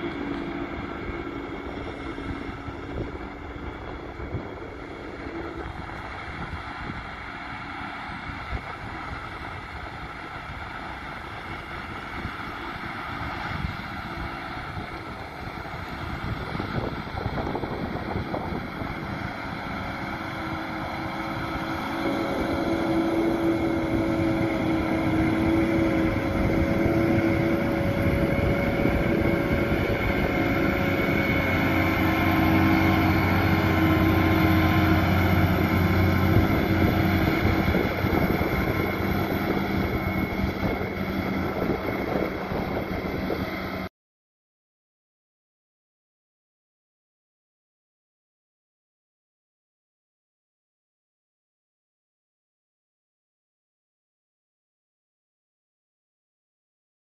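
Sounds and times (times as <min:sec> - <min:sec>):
wind on microphone: 0:00.0 - 0:07.4, 0:08.0 - 0:43.9
high hum: 0:00.0 - 0:43.9
tractor running: 0:00.0 - 0:43.9.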